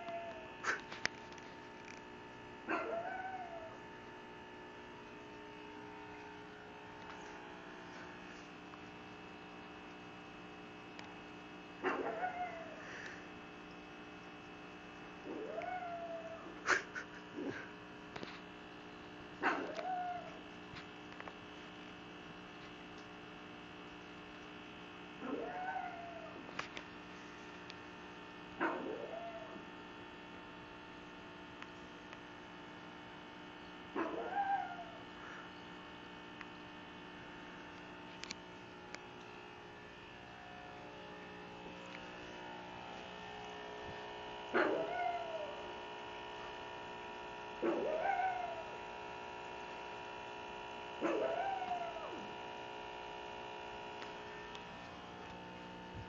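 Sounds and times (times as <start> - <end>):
dog whining: 0.0 - 0.9, 2.7 - 3.8, 11.8 - 12.9, 15.2 - 17.7, 19.4 - 20.4, 25.2 - 26.5, 28.6 - 29.6, 34.0 - 35.0, 44.6 - 45.7, 47.6 - 48.8, 51.0 - 52.3
electrical hum: 0.0 - 56.0.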